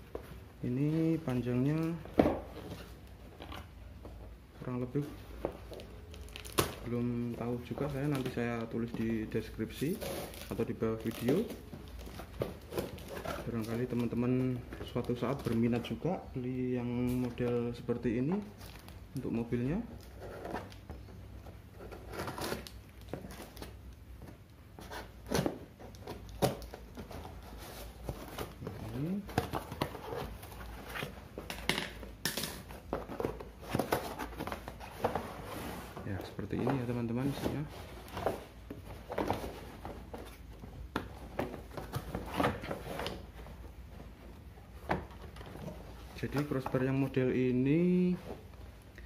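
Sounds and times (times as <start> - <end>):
scratching and rustling: 32.6 - 47.2.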